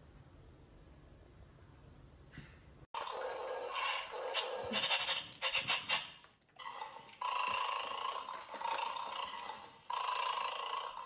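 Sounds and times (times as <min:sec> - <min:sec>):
toy clicks and rattles: 0:03.3 - 0:07.2
electronic toy growl: 0:06.6 - 0:11.0.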